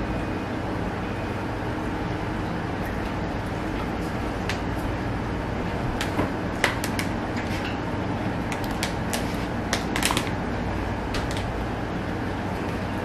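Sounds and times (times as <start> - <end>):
steady low hum: 0.0 - 13.0
plastic bottle crackling: 8.5 - 10.4.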